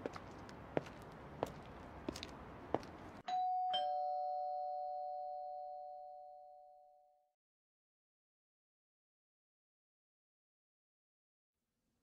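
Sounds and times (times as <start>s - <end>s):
two-tone doorbell chime: 3.3s - 7.2s.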